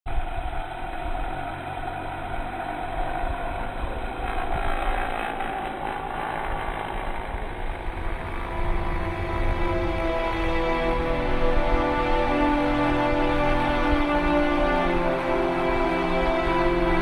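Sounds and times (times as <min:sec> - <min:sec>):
drone propellers buzzing: 0:00.1 - 0:17.0.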